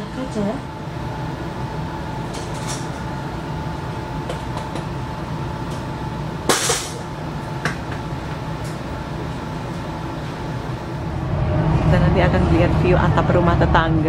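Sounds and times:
train carriage rumble and hum: 0:00.0 - 0:14.0
loud clunk: 0:06.5 - 0:08.0.

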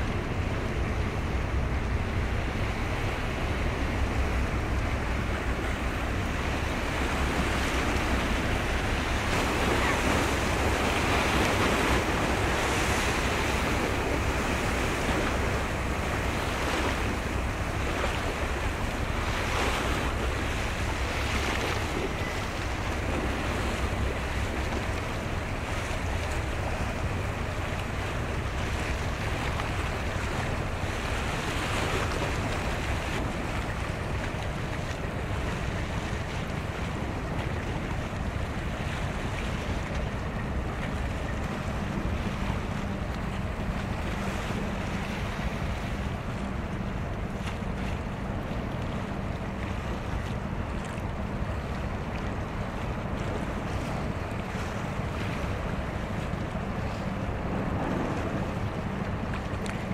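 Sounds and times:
choppy sea water rushing: 0:00.0 - 0:59.9
wind buffeting microphone: 0:00.0 - 0:59.9
low rumble: 0:56.4 - 0:59.9.

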